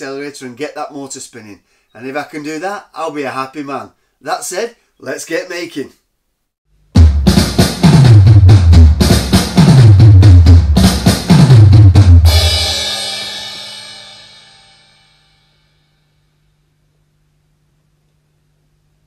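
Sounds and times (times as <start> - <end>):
drum kit beat: 6.9 - 14.9
cymbal crash: 10.8 - 16.0.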